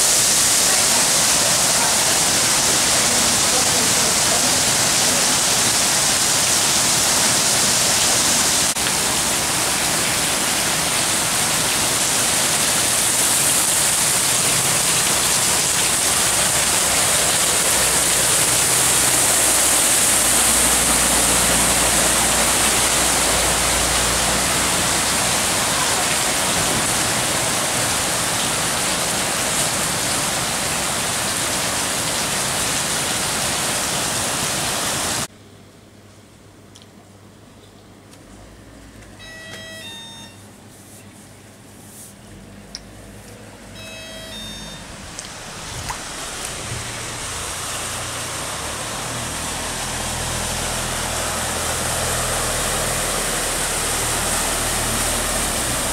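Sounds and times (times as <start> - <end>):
torrential rain on flooded street: 0.0 - 35.3, 43.8 - 55.9
vehicle engine rumble: 44.8 - 55.9.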